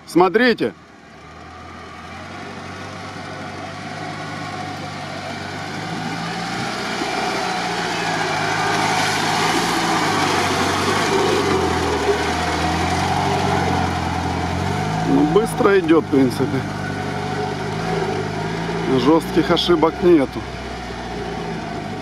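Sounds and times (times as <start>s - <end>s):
off-road vehicle engine passing: 0.0s - 22.0s.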